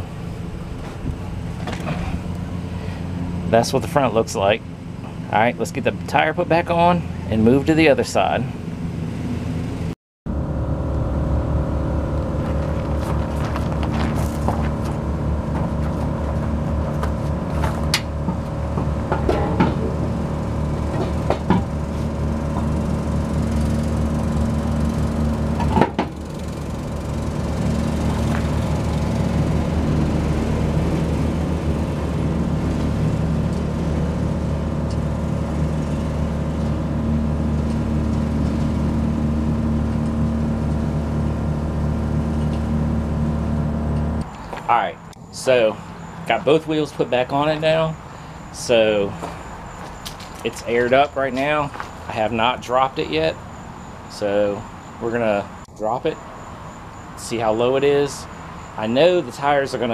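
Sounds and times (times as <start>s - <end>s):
mechanical hum: 0.0s - 59.9s
lug nuts clicking and knocking: 12.8s - 20.1s, 20.7s - 24.0s.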